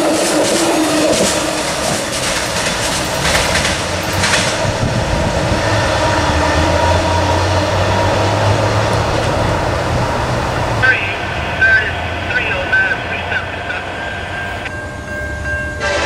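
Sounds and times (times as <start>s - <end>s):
train wheels clicking over rail joints: 0.0s - 10.8s.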